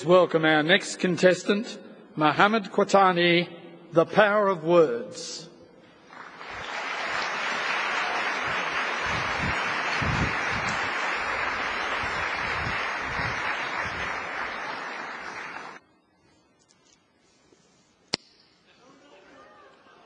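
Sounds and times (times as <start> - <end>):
audience applauding: 6.1 - 15.8.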